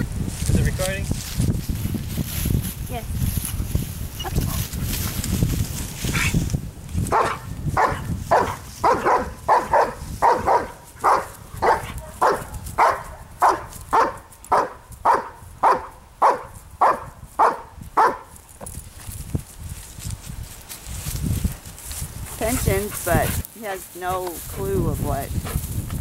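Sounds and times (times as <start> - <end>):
dog barking sharply: 7.1 - 18.3.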